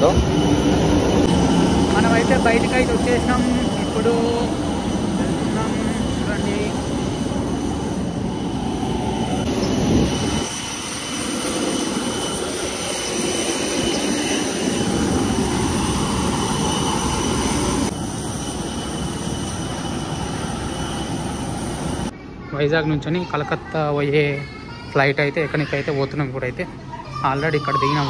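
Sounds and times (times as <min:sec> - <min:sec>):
jet aircraft rush and whine: 0:00.0 - 0:22.2.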